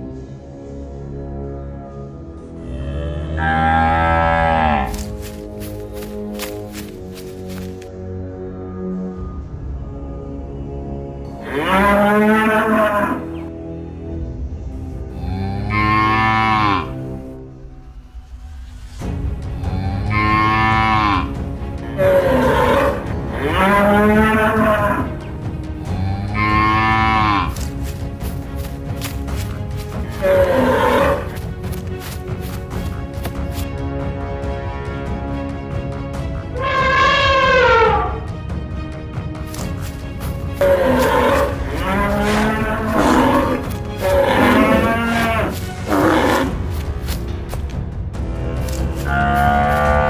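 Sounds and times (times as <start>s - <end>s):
low background music: 0.0s - 50.0s
cattle mooing: 2.7s - 5.1s, 11.4s - 13.3s, 15.2s - 17.0s, 21.9s - 25.1s, 25.9s - 27.7s, 30.0s - 31.4s, 40.6s - 46.8s, 48.6s - 50.0s.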